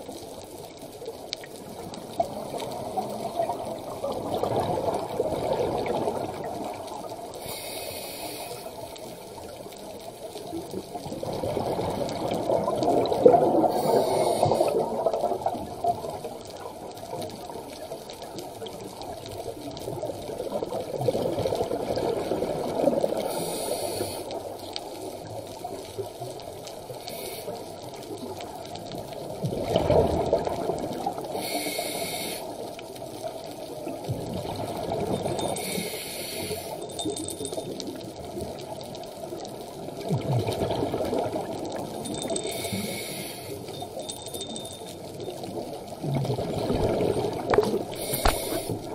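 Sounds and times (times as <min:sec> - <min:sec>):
bubbling exhalations underwater: 0:11.1 - 0:15.6, 0:29.4 - 0:31.2, 0:46.0 - 0:48.9.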